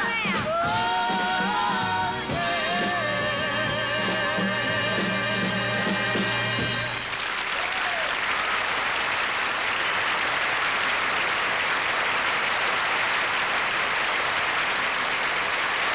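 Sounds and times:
large audience applauding: 6.8s - 15.9s.

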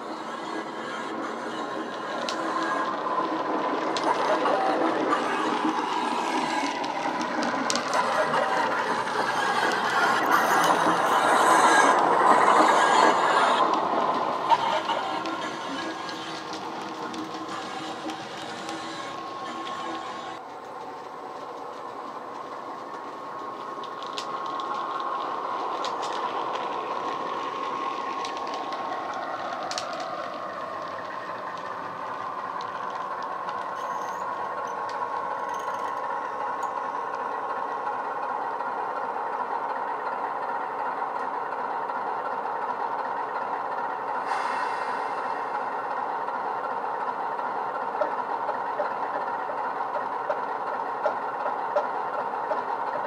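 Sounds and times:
model diesel engine drone: 25.0s - 53.0s.

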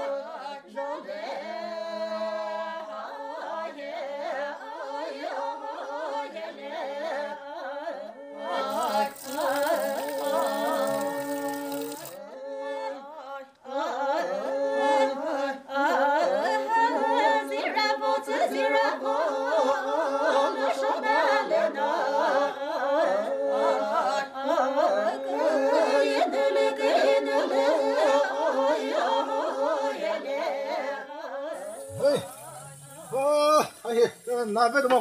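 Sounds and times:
person singing a wavering melody: 8.6s - 12.2s, 31.6s - 34.3s.

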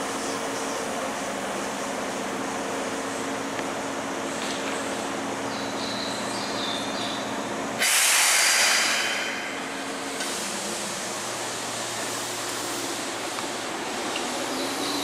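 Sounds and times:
electric hum of trains: 0.0s - 15.0s
train compressed air hiss: 7.8s - 11.2s.

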